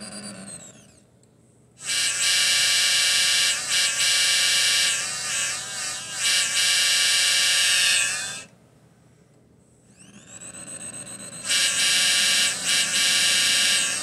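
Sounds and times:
electronic train horn from loudspeaker: 1.8 - 5.1, 6.2 - 8.1, 11.5 - 14.0.

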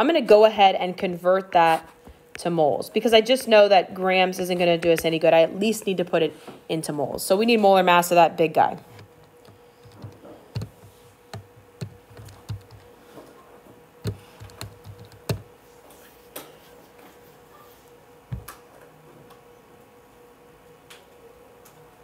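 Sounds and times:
faint steady hum: 0.0 - 22.0
keys tapping: 8.9 - 12.9, 14.0 - 15.5.

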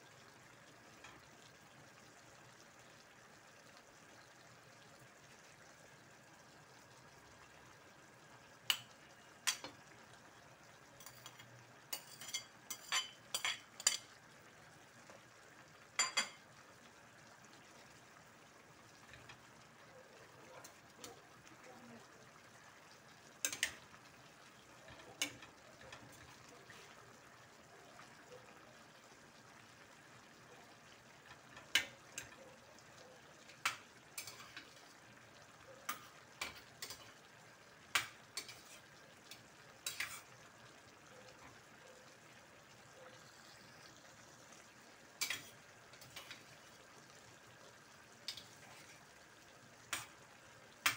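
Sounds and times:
simmering pan hiss: 0.0 - 50.9
metal spoon clinking on dishes: 11.0 - 14.1, 16.0 - 16.4, 34.2 - 34.6.

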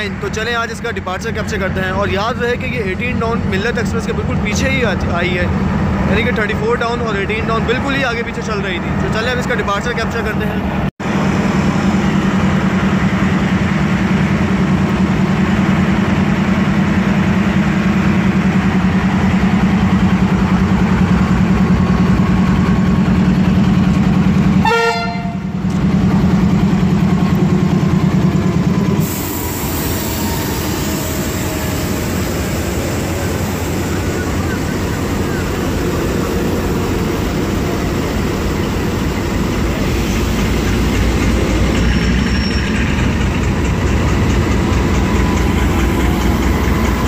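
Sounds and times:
locomotive engine droning: 0.0 - 47.0
train rolling: 0.0 - 47.0
train horn blast: 24.6 - 25.6.

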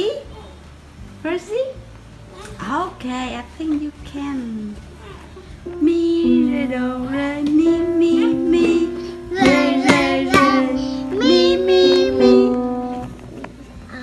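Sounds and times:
upright piano notes: 5.6 - 13.8
child singing: 5.7 - 13.0.

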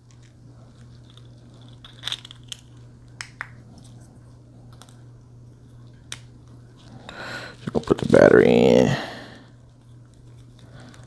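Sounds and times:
plastic packaging crinkling: 0.0 - 3.3, 7.5 - 8.5
low steady hum: 0.0 - 11.0.

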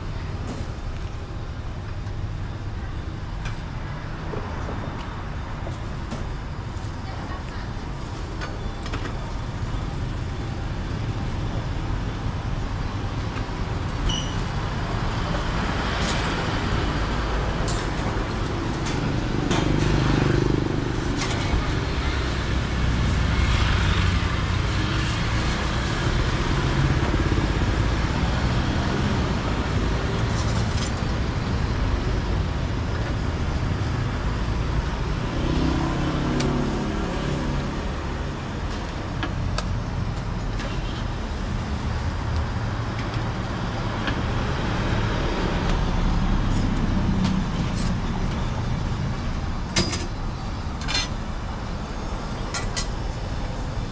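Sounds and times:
vehicles passing: 9.3 - 53.9
engine passing close: 33.6 - 39.2.

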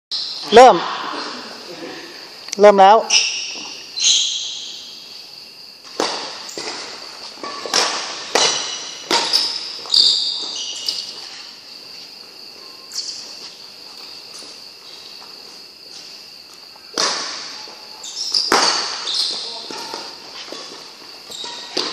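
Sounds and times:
shuttlecock struck with rackets: 7.4 - 9.4
high steady ringing tone: 8.6 - 18.4.

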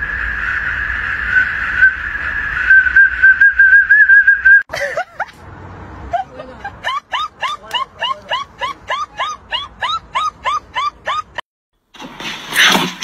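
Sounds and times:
shrill metal whistle: 0.0 - 4.6
dog yelping: 6.9 - 11.4.

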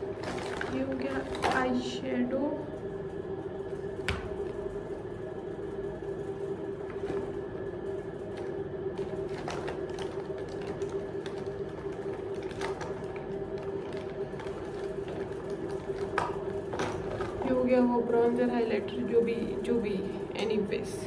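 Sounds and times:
motor hum: 0.0 - 21.0.

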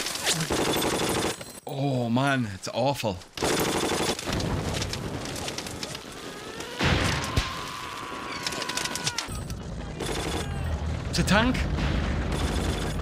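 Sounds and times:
gunfire: 10.0 - 10.6, 11.6 - 13.0
heavy blast: 10.5 - 13.0.

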